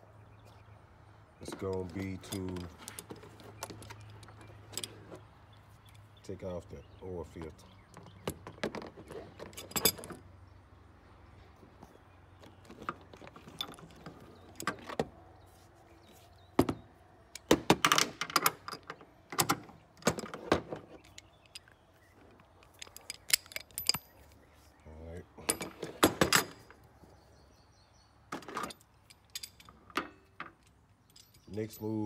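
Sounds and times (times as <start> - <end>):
metallic clinks of tools: 22.6 - 24.3, 28.6 - 32.0.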